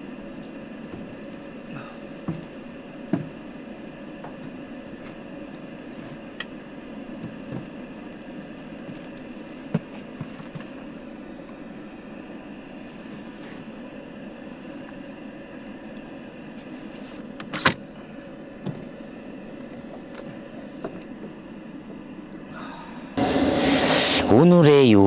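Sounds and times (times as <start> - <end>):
steady background hum: 0.0 - 25.0.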